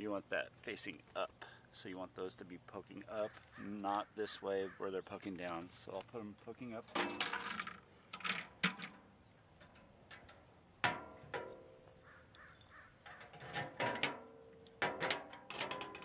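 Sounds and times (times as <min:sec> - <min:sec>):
mailbox door clacks and metal knocks: 0:06.9 - 0:09.0, 0:13.1 - 0:16.0.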